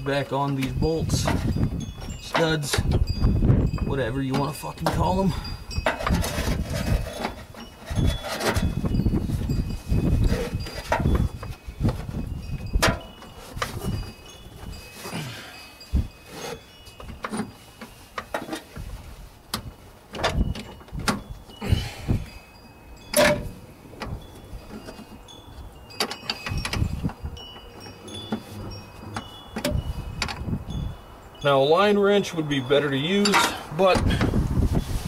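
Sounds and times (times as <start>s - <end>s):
clicks and knocks of metal tools: 0.2s - 3.0s, 3.8s - 9.0s, 16.3s - 18.9s, 23.1s - 30.5s, 33.1s - 34.3s.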